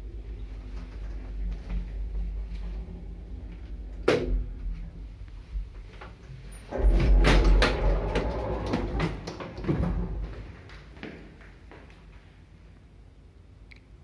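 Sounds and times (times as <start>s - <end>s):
lift doors sliding open: 6.2s - 10.7s.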